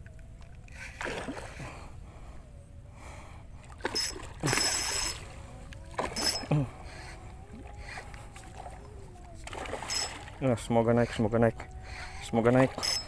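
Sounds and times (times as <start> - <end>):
fish thrashing and splashing: 0.9 - 1.6, 3.6 - 6.8, 7.5 - 10.4.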